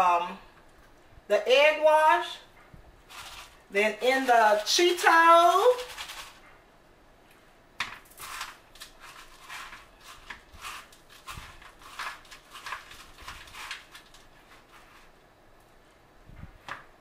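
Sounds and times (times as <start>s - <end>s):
crumbs crackling in a bowl: 3.0s - 6.4s, 7.8s - 15.2s.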